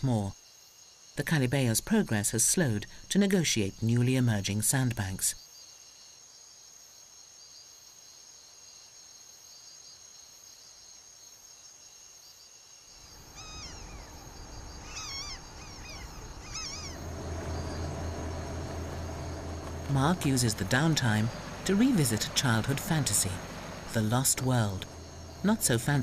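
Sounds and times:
high-pitched insect chorus: 9.8s - 26.0s
low rumbling noise: 13.0s - 26.0s
rising-and-falling calls: 13.0s - 26.0s.

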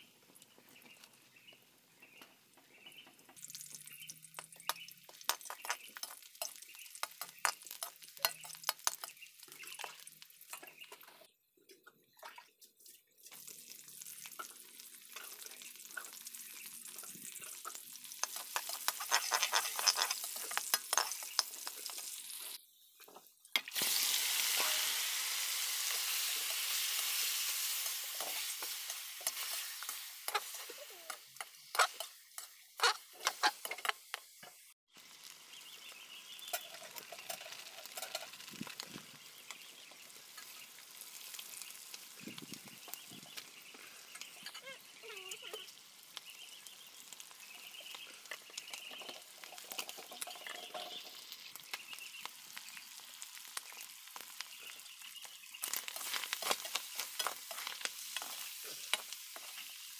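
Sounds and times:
meat frying in hot oil: 2.7s - 11.3s, 12.8s - 59.9s
metal spoon stirring in wok: 4.6s - 10.7s, 17.0s - 22.6s, 24.4s - 34.6s, 36.4s - 38.8s, 48.2s - 51.6s, 55.6s - 59.9s.

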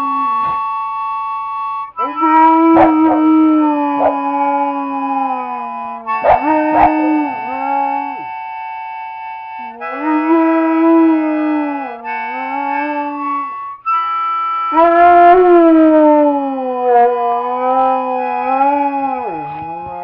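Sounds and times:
harmonica chords: 0.0s - 20.0s
dog howling: 2.0s - 8.3s, 9.7s - 13.6s, 14.7s - 20.0s.

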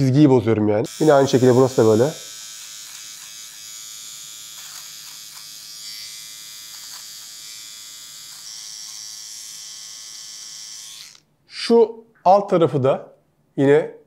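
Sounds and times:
faint clicks of trimmer catching hairs: 0.9s - 11.2s
electric trimmer buzzing: 0.9s - 11.3s.

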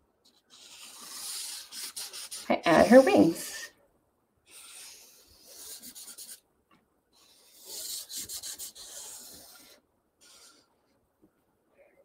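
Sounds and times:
marker drawing on paper: 0.2s - 3.7s, 4.4s - 6.4s, 7.1s - 11.0s.

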